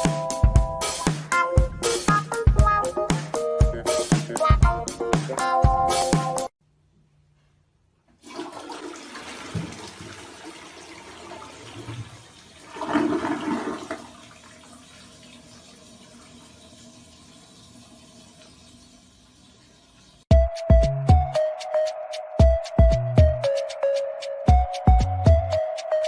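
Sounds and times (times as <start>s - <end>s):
toilet flushing: 8.2s - 20.3s.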